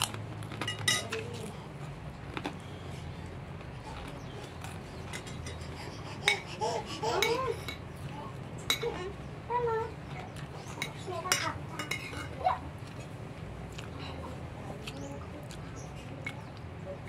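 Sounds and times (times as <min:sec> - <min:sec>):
metal spoon clinking on plate: 0:10.8 - 0:12.4.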